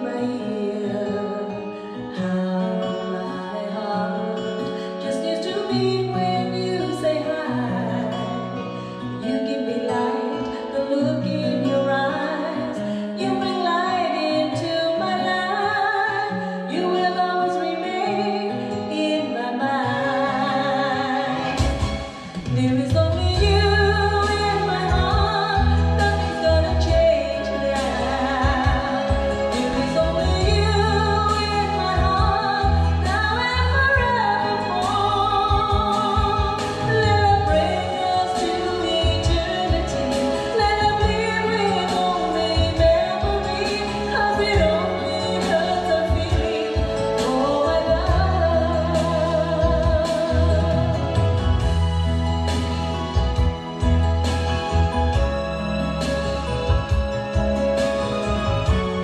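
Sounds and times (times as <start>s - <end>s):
person singing karaoke: 0.0s - 59.0s
backing track with bass line: 19.9s - 59.0s.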